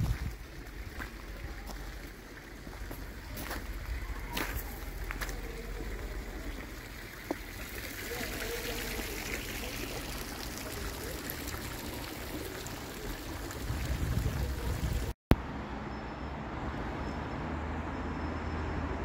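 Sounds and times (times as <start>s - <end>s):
fountain water splashing: 0.0s - 15.2s.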